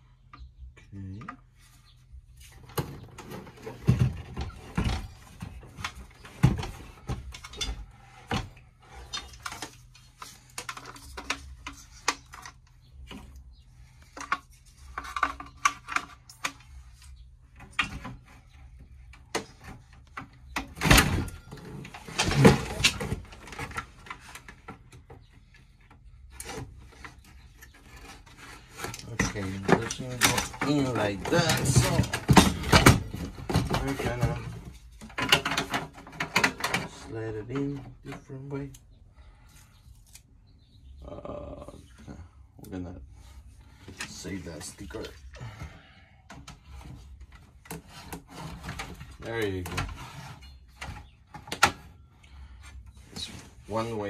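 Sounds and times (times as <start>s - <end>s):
metallic clatter of handled parts: 9.0s - 13.3s, 14.0s - 18.0s.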